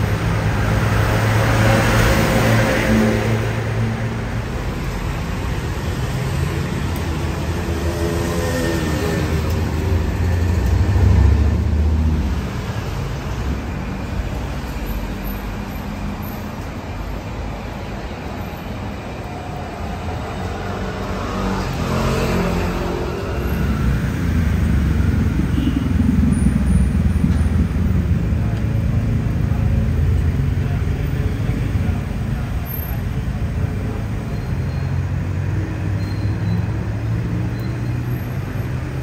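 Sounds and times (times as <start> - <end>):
vehicles passing with engine rumble: 0.0 - 39.0.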